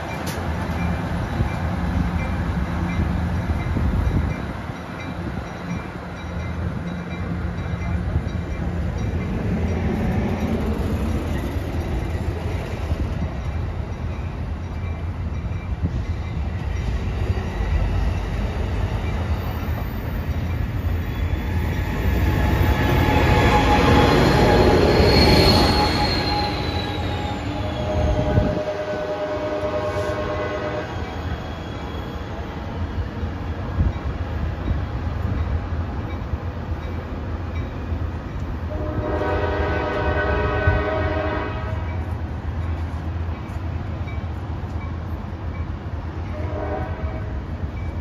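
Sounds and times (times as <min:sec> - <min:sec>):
locomotive passing: 0:00.0 - 0:48.0
train cars rumbling on rails: 0:00.0 - 0:48.0
high wheel squeal: 0:21.0 - 0:28.5, 0:30.8 - 0:32.5.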